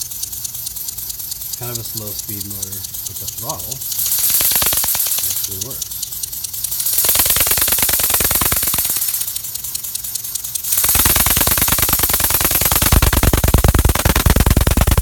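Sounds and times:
miniature steam engine chattering: 0.0s - 15.0s.

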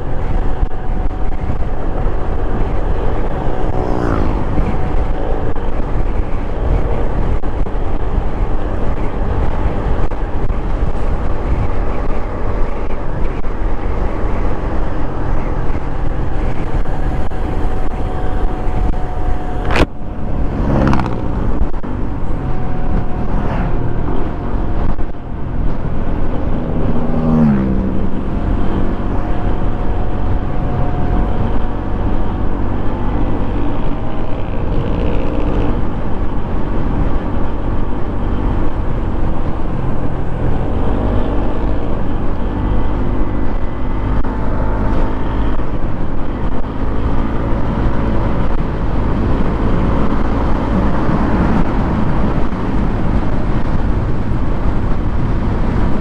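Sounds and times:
scooter engine running: 0.0s - 25.3s
wind and road noise: 0.0s - 56.0s.

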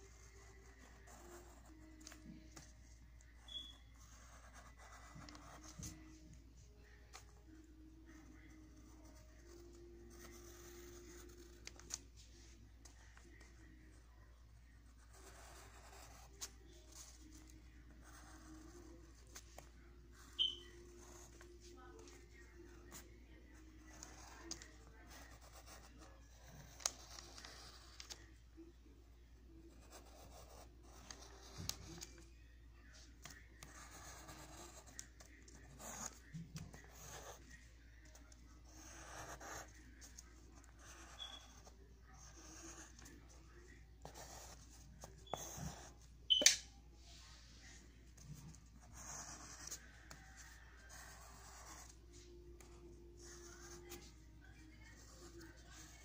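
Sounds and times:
pencil scratching on paper: 0.0s - 28.4s, 29.6s - 32.2s, 32.9s - 46.1s, 48.0s - 56.0s.

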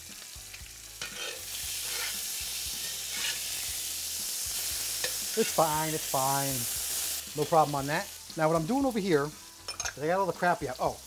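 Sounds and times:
bacon sizzling in a skillet: 0.0s - 11.0s
fork scraping: 1.0s - 2.2s, 2.8s - 3.5s.

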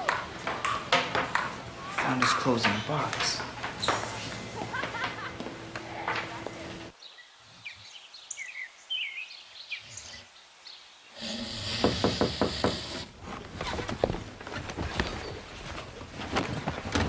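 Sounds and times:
bird chirps: 7.0s - 10.9s
loud hiss: 11.1s - 13.2s.

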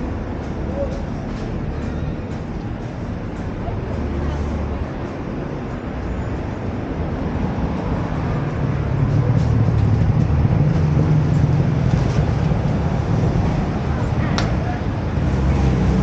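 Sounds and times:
faint voices: 0.0s - 6.5s, 13.4s - 16.0s
traffic engine rumble: 0.0s - 16.0s.

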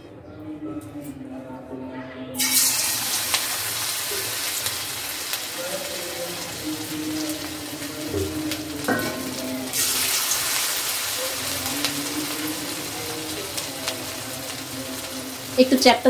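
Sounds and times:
hot oil sizzling: 2.4s - 16.0s.

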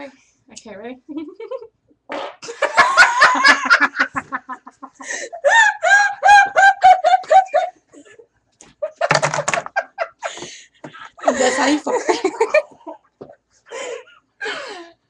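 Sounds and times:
women giggling: 2.5s - 8.2s, 8.8s - 14.6s.

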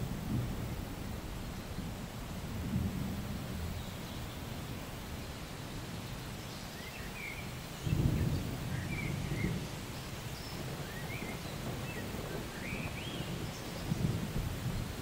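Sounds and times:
thunder rumble: 0.0s - 1.3s, 7.8s - 15.0s.

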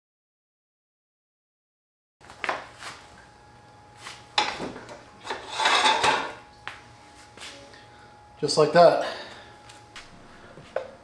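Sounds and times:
faint steady hum: 2.2s - 11.0s
scraping rub: 5.2s - 6.3s.

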